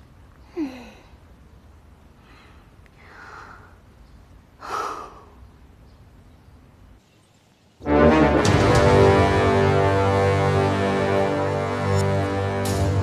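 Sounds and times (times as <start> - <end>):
woman sighing: 0.5 - 1.1, 4.6 - 5.4.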